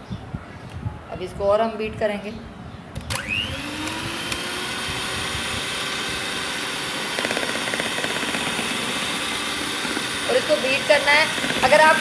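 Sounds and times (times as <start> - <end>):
electric hand mixer whirring: 3.1 - 12.0.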